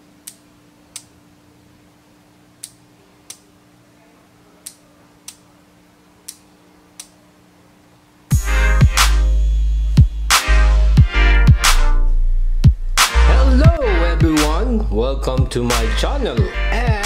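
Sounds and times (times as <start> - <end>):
faint steady hum: 0.0 - 8.4
button and relay clicking: 7.0 - 7.2.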